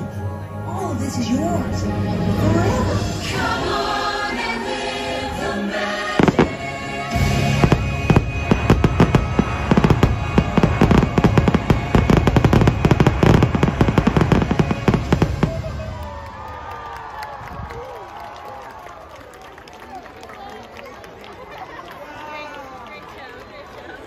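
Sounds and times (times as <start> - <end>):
music with choir: 1.6 - 15.2
fireworks bursting: 6.0 - 16.0.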